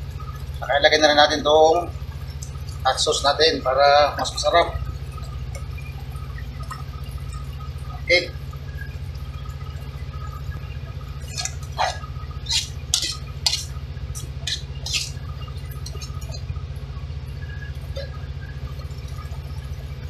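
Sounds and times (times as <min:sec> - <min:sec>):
steady low hum: 0:00.0 - 0:20.0
metal spoon scraping a wok: 0:12.5 - 0:15.2.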